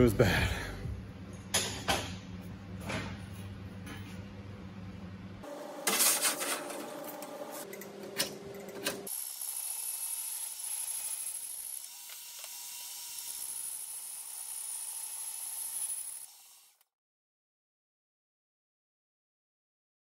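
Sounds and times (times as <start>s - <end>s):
bandsaw whining: 9.1s - 16.8s.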